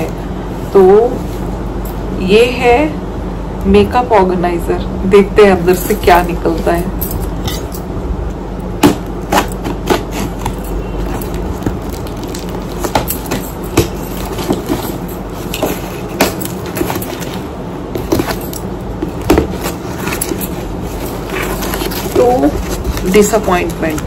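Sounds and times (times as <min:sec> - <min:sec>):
packing tape crackling: 0:08.8 - 0:24.0.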